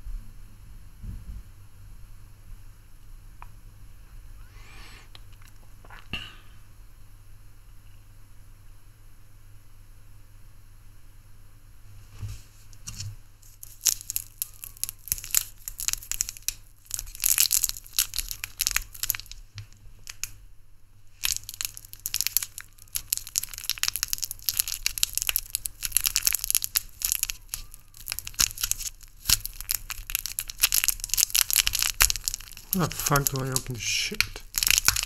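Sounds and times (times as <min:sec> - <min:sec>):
wrapper crinkling: 0:13.4 - 0:20.4, 0:21.1 - 0:35.0.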